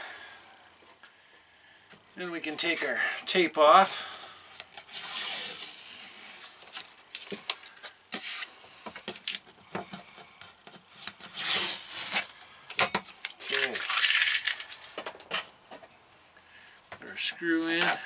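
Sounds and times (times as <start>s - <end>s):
tape being peeled off: 4.5s - 9.6s, 10.7s - 12.4s, 13.1s - 15.0s.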